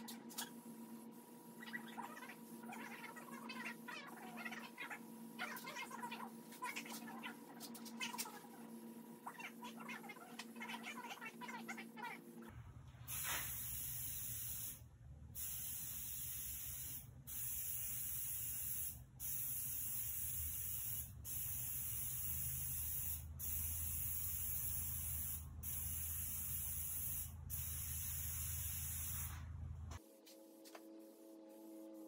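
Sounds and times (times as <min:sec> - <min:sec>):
aerosol sprayer hissing: 0:15.4 - 0:29.4.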